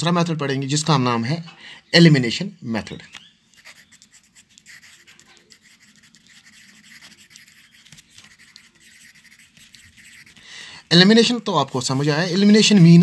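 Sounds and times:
faint scratching and rustling: 0:03.5 - 0:10.5, 0:11.2 - 0:12.7.

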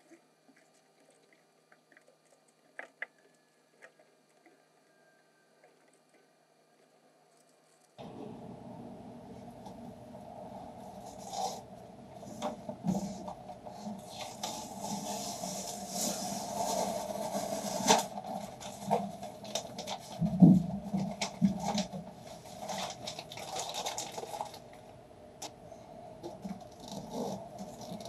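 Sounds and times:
foam sheet rustling and crinkling: 0:12.3 - 0:24.7.

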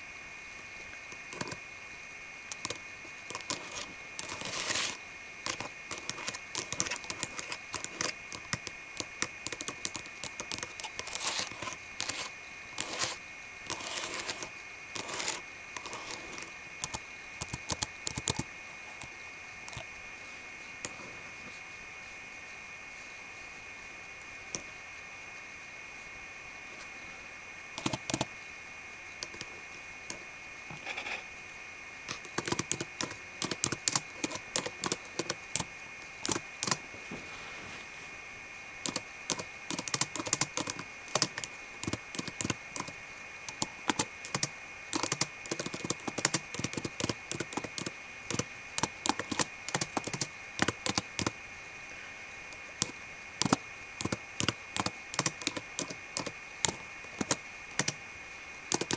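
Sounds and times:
faint high whine: 0:00.0 - 0:58.9
fingernails typing on keyboard: 0:01.1 - 0:01.6, 0:02.5 - 0:19.1, 0:27.8 - 0:28.3, 0:29.2 - 0:29.5, 0:32.1 - 0:36.8, 0:38.8 - 0:42.9, 0:43.5 - 0:51.3, 0:52.8 - 0:58.0.

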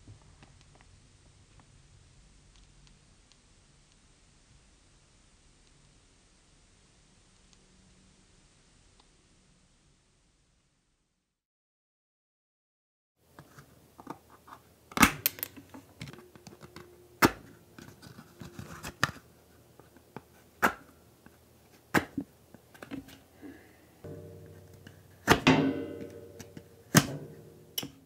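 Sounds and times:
low steady hum: 0:13.2 - 0:28.0.

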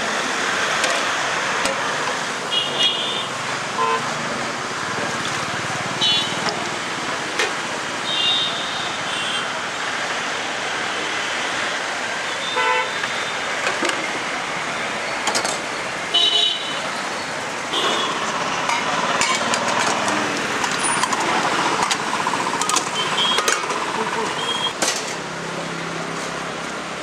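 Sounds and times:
street traffic: 0:00.0 - 0:27.0
vehicle horn toots: 0:06.0 - 0:06.4, 0:12.4 - 0:13.0, 0:17.8 - 0:18.2, 0:23.0 - 0:23.6.

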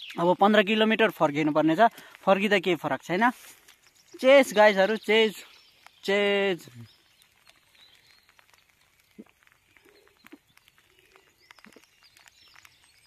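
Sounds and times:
faint ticks: 0:05.5 - 0:13.0.

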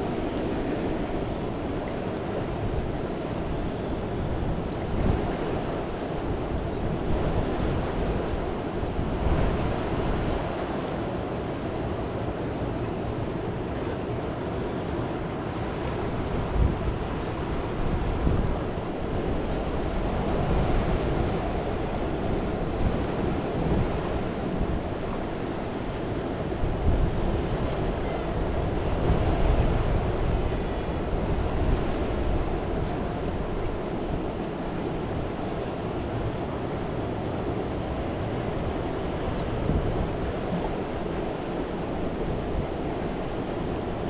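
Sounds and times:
fast-flowing river rushing: 0:00.0 - 0:44.0
wind rumbling on microphone: 0:00.0 - 0:44.0.

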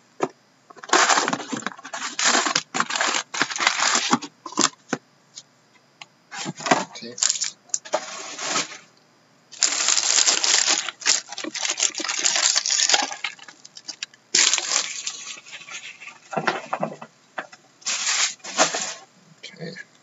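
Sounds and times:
wrappers crinkling and tearing: 0:00.9 - 0:04.2, 0:07.2 - 0:08.8, 0:09.6 - 0:16.6.

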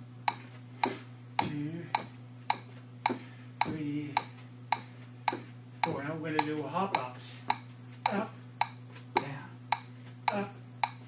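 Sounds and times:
low steady hum: 0:00.0 - 0:11.0
metronome ticking: 0:00.3 - 0:11.0
man speaking: 0:01.4 - 0:02.0, 0:03.6 - 0:04.3, 0:05.8 - 0:07.5.

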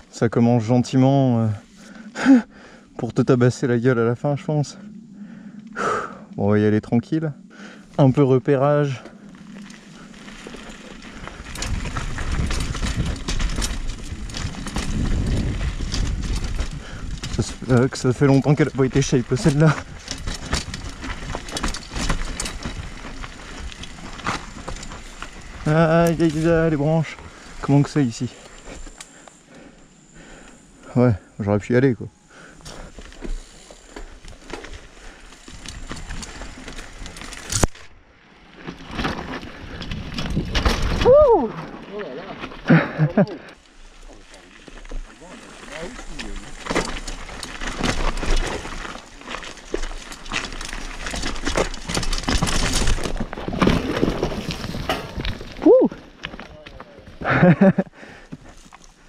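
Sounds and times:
bike tyres rumbling over dirt: 0:00.0 - 0:59.0
bike clattering and rattling: 0:07.5 - 0:30.8, 0:32.2 - 0:59.0
tyres scrubbing over dirt: 0:38.5 - 0:59.0.

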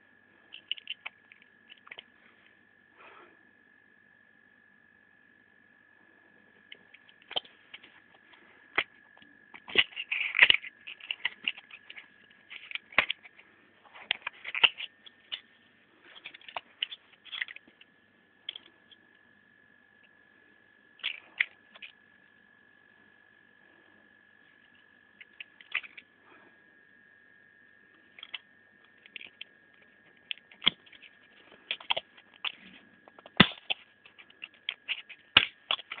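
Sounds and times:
plastic blister pack crinkling: 0:00.5 - 0:02.0, 0:07.0 - 0:15.5, 0:16.1 - 0:17.8, 0:29.0 - 0:36.0.

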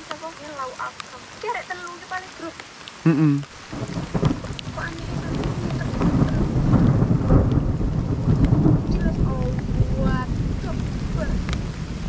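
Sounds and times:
motorcycle engine rumbling: 0:03.1 - 0:12.0.

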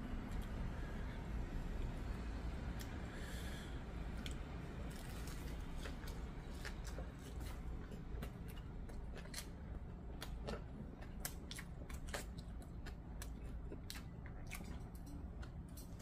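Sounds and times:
steady low hum: 0:00.0 - 0:16.0
person chewing food: 0:04.1 - 0:16.0.

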